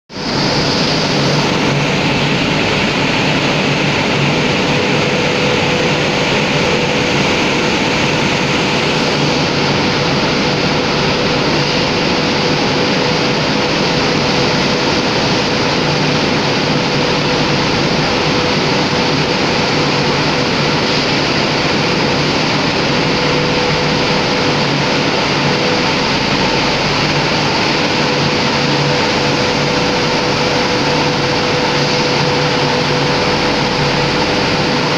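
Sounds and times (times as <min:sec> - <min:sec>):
milling machinery running: 0:00.1 - 0:34.9.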